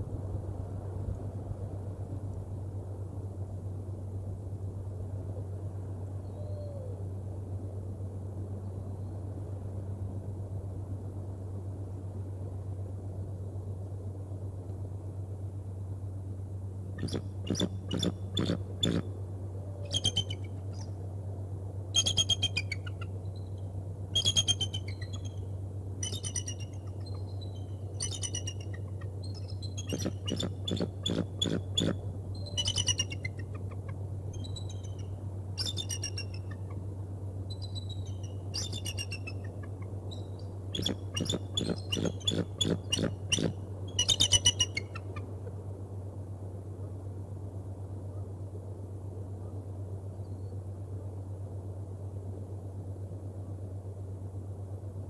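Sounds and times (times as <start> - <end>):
steady low hum: 0.0 - 55.0
eagle chattering whistles: 40.8 - 45.0.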